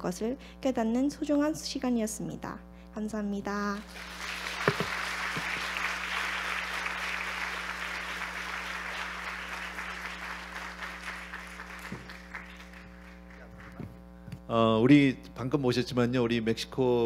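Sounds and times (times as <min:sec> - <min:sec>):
audience applauding: 0:03.8 - 0:13.9.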